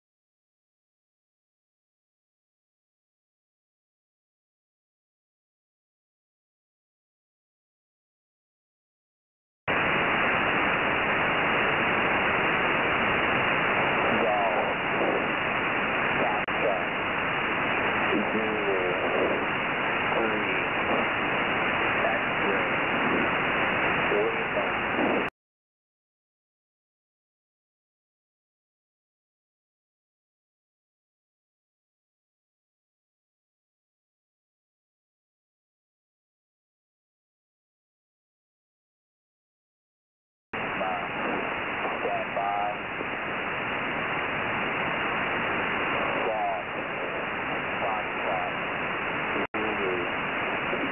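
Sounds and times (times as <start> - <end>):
radio static hiss: 9.7 - 25.3, 40.6 - 50.9
faint radio voice: 13.8 - 15.4, 16.1 - 17.0, 18.1 - 21.2, 21.9 - 23.4, 24.1 - 25.3, 40.6 - 43.0, 45.9 - 48.6, 49.3 - 50.9.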